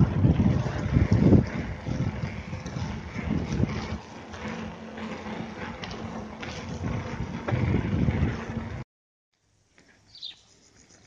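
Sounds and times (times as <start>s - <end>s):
bicycle clicks: 0.0s - 8.8s, 9.7s - 11.0s
tyre noise on asphalt: 0.0s - 8.8s
wind rumbling on microphone: 0.0s - 8.8s.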